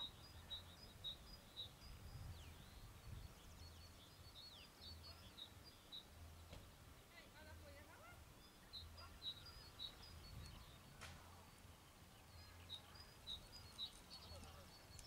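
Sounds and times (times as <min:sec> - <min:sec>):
faint birdsong: 0:00.0 - 0:15.0.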